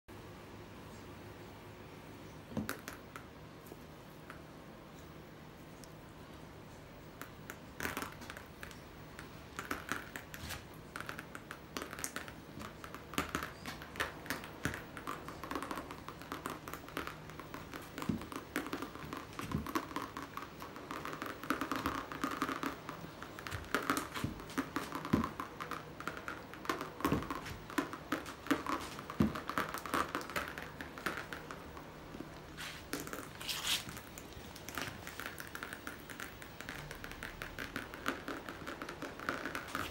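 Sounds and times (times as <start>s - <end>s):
paint pattering onto canvas: 7.9s - 39.9s
rustling: 32.4s - 35.8s.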